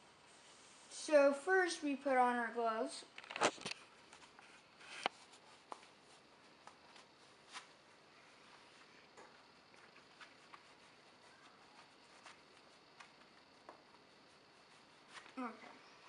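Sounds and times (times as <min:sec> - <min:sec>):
faint taps and rubs: 0:04.1 - 0:07.7
leather gloves rustling: 0:08.5 - 0:15.5.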